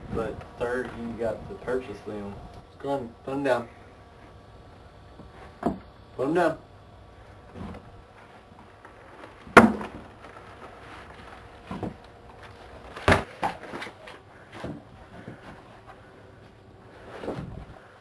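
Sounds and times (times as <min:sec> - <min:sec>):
sharp knocks and thumps: 0:05.2 - 0:05.9.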